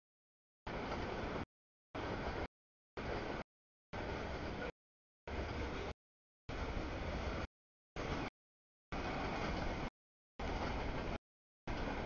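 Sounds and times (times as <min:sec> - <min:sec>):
freight train wheels rumbling on rail: 0:09.0 - 0:12.0.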